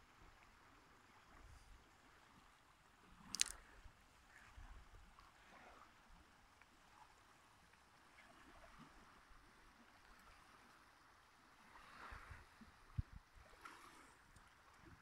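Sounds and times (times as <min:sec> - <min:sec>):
water lapping against rocks: 0:03.0 - 0:10.8, 0:11.4 - 0:15.0.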